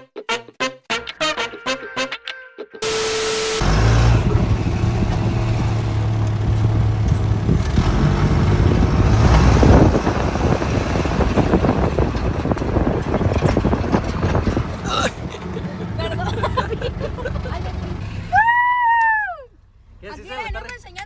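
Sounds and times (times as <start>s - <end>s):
tv static effect: 2.8s - 4.1s
steady tone: 2.8s - 4.5s
vehicle engine running: 2.8s - 18.4s
wind rushing over microphone: 6.4s - 15.4s.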